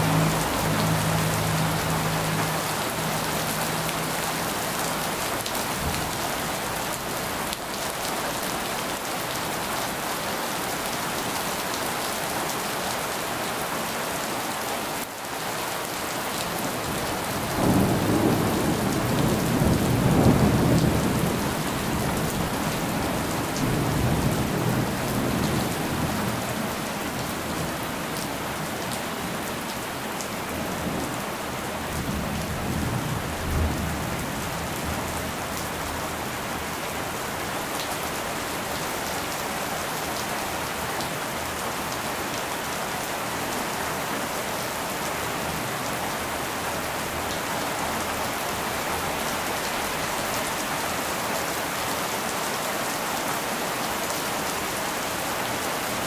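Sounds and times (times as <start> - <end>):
heavy rain on road: 0.0 - 56.0
thunder rumbling: 17.6 - 26.5.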